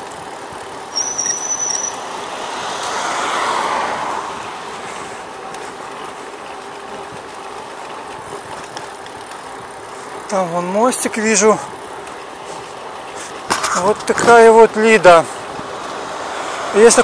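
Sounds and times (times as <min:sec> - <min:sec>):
street traffic: 0:00.0 - 0:17.0
short high squeak: 0:00.9 - 0:02.0
car passing: 0:00.9 - 0:08.2, 0:14.4 - 0:17.0.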